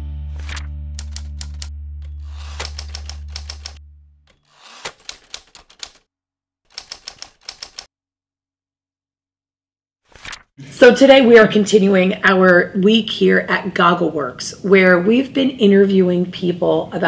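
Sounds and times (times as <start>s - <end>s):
typewriter keys clacking: 0.4s - 1.7s, 2.3s - 3.8s, 4.7s - 6.0s, 6.7s - 7.9s.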